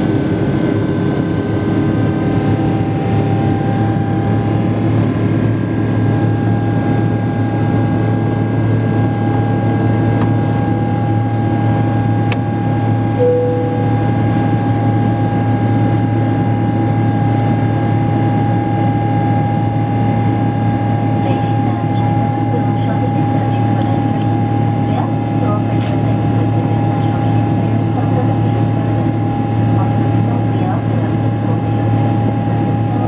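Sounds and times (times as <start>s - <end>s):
jet engine drone with rushing air: 0.0s - 33.0s
short cabin tone: 13.2s - 14.5s.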